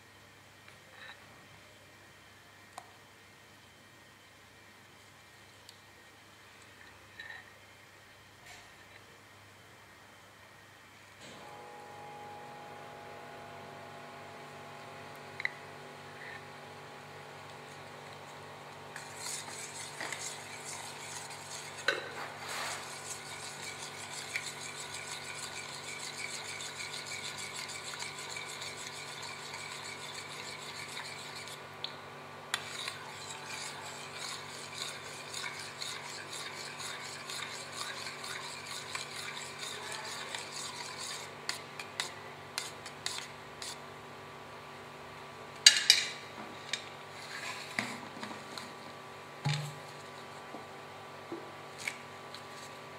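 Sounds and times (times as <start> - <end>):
spoon stirring in metal bowl: 18.9 - 31.6, 32.5 - 43.8.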